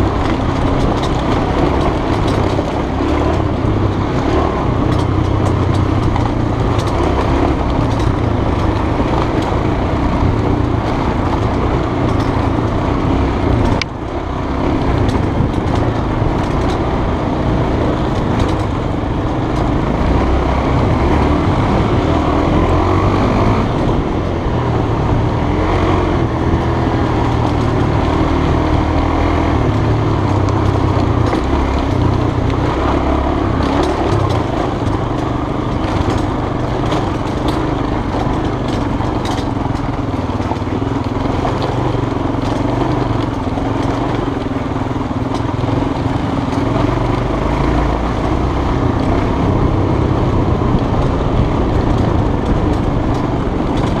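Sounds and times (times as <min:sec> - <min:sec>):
bike rattling over stones: 0:00.0 - 0:54.0
motorbike engine running: 0:00.0 - 0:54.0
wind rush: 0:48.8 - 0:54.0.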